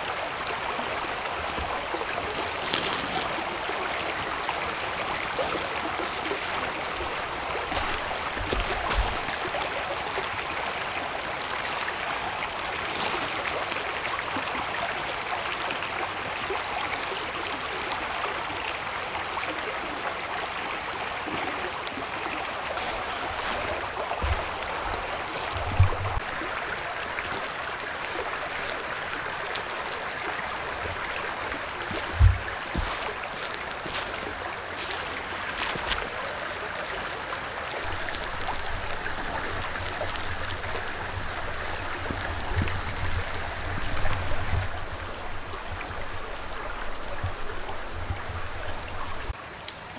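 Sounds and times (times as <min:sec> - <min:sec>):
running water rushing: 0:00.0 - 0:49.9
dull low thumps: 0:23.7 - 0:26.2.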